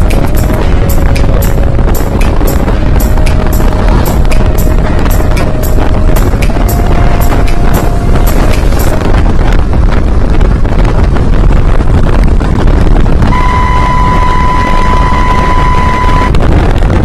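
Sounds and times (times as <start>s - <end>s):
wind buffeting microphone: 0.0s - 17.0s
steady high beep: 13.3s - 16.4s.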